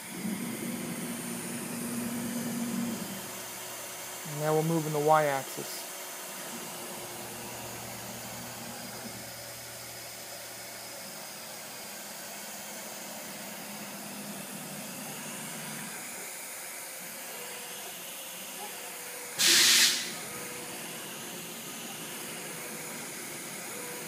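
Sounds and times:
machine gantry hiss and hum: 0.0s - 24.0s.

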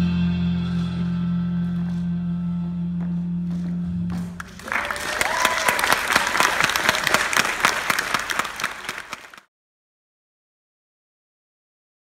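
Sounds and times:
audience applauding: 4.2s - 9.5s.

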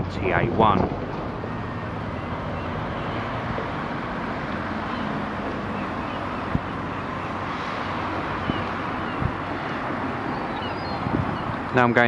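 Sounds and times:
distant traffic hum: 0.0s - 12.0s
wind on microphone: 0.0s - 12.0s.

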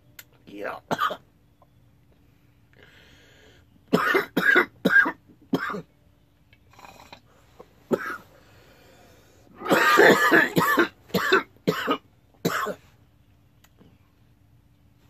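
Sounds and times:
man coughing: 0.9s - 1.2s, 3.9s - 5.8s, 7.9s - 8.3s, 9.6s - 12.8s.

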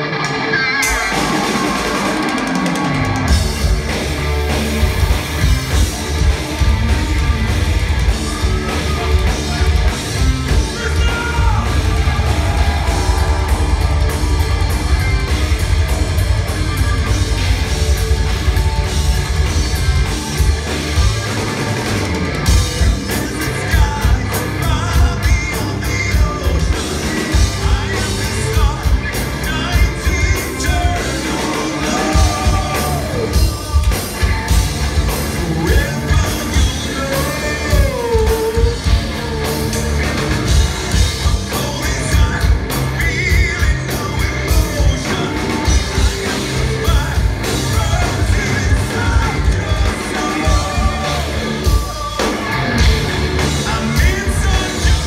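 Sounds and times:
live metal band playing: 0.0s - 55.0s
person singing: 22.8s - 39.8s, 41.1s - 55.0s.

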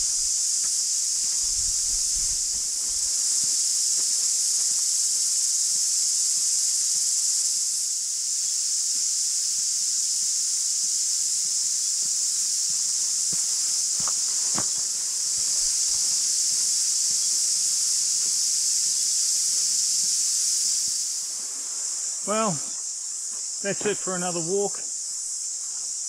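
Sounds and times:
cicadas buzzing: 0.0s - 26.0s
footsteps on dirt track: 12.6s - 16.8s, 23.2s - 24.1s, 25.1s - 26.0s.

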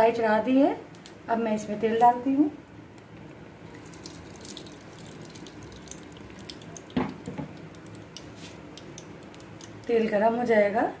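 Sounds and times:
oil pouring into pan: 3.7s - 9.9s.

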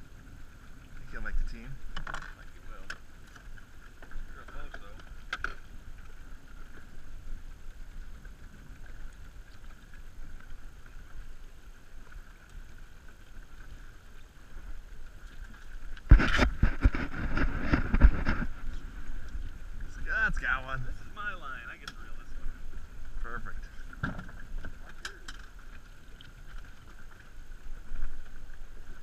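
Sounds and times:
low background noise on boat: 0.0s - 29.0s.

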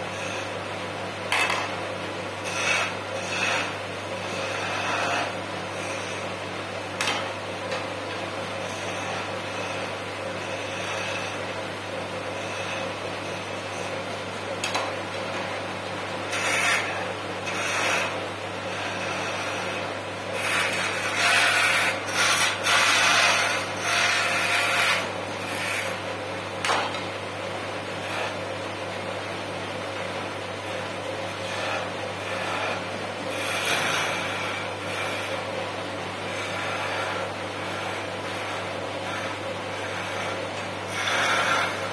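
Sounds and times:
wood lathe humming: 0.0s - 41.9s
turning tool cutting wood: 2.4s - 6.3s, 8.6s - 11.5s, 12.3s - 14.0s, 16.2s - 26.0s, 27.9s - 28.5s, 30.6s - 41.9s.

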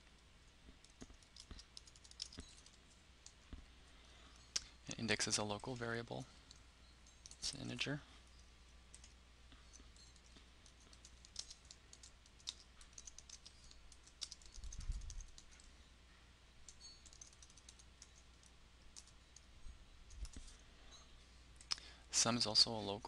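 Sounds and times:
keyboard typing: 0.7s - 3.4s, 5.3s - 7.6s, 8.9s - 15.7s, 16.6s - 19.5s.

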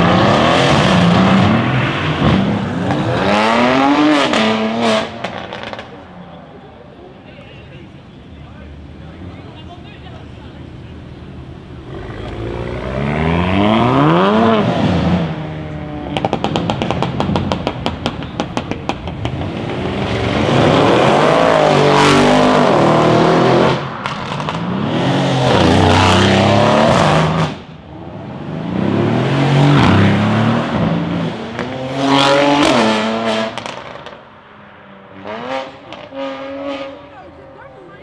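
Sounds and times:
car engine revving: 0.0s - 6.2s, 11.7s - 34.3s, 35.0s - 38.0s
exhaust popping and crackling: 16.0s - 21.1s.

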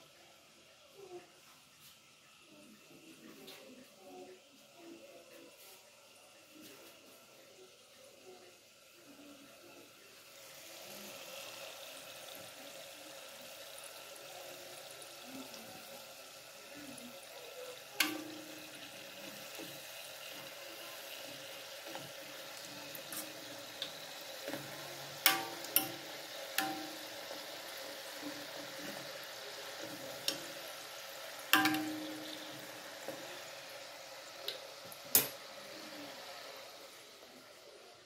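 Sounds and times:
dough deep-frying in oil: 0.0s - 38.0s.

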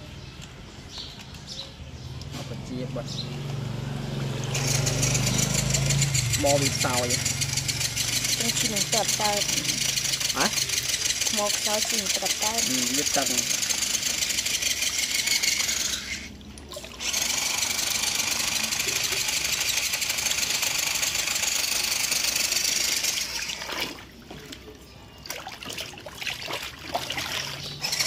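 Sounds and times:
toy car motor running: 4.4s - 16.4s, 17.0s - 23.7s, 27.7s - 28.0s
water splashes: 16.3s - 17.2s, 23.2s - 28.0s.

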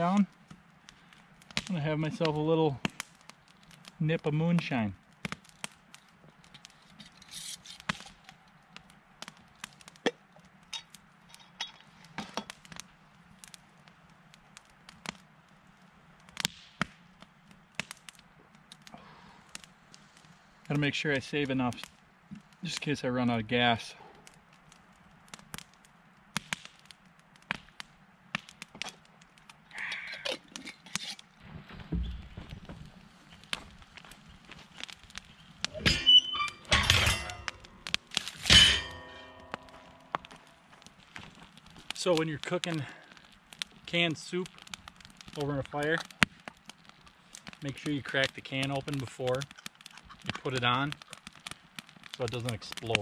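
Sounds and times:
burning wood popping: 0.0s - 53.0s
campfire crackling: 0.0s - 53.0s.

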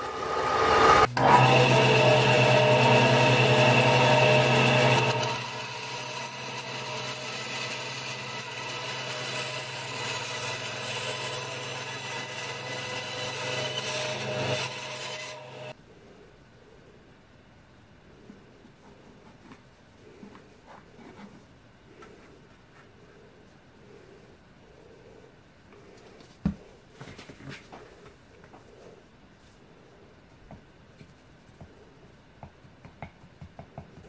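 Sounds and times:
band saw cutting wood: 0.0s - 15.8s.

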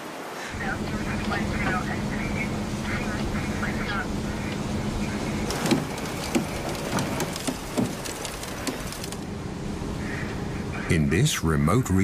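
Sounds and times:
boat engine humming: 0.5s - 12.0s
knocks and clicks: 5.4s - 9.2s.

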